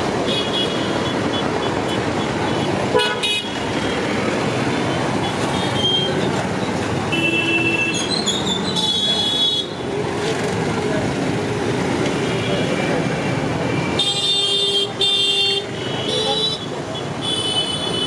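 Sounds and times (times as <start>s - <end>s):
road traffic: 0.0s - 18.0s
vehicle horns tooting: 2.5s - 3.6s.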